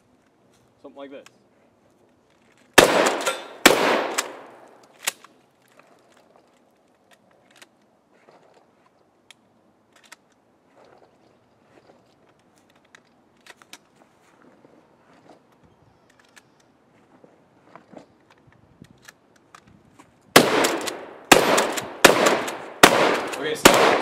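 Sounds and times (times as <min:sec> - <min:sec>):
shotgun shots: 0:02.8 - 0:04.8, 0:20.4 - 0:24.0
sharp metallic clack: 0:03.0 - 0:04.4
shells loaded clicking: 0:09.3 - 0:10.4, 0:20.6 - 0:24.0.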